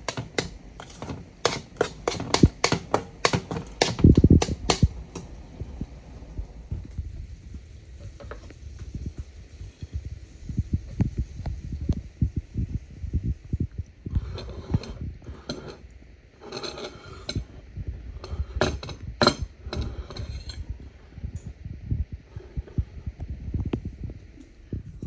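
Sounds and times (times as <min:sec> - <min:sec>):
dishes and cutlery clinking: 0:00.0 - 0:05.3, 0:14.2 - 0:15.8, 0:16.4 - 0:17.6, 0:18.2 - 0:20.7.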